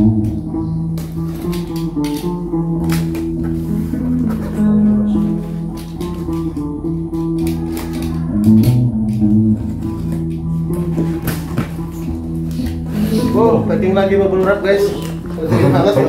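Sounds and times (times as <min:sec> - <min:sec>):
guitar low plucked notes: 0:00.0 - 0:16.0
tape being cut: 0:00.9 - 0:13.3.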